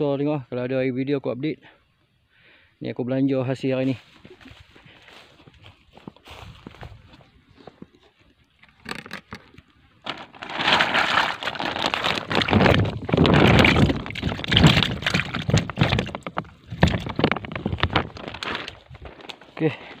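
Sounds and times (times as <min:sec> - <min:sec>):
plastic sack rustling: 0:10.0 - 0:20.0.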